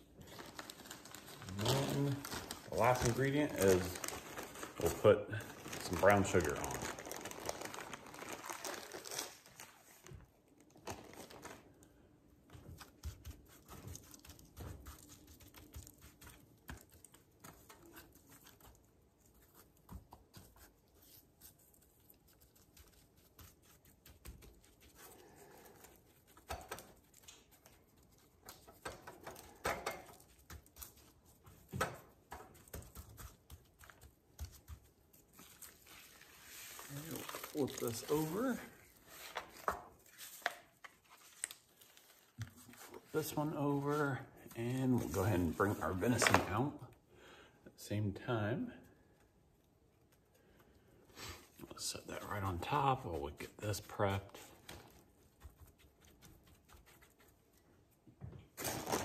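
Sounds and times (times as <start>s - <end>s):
plastic bag rustling: 0.0s - 11.9s, 33.9s - 46.6s, 58.5s - 59.0s
hand patting and rubbing meat: 12.4s - 25.1s, 25.7s - 41.3s, 54.3s - 58.5s.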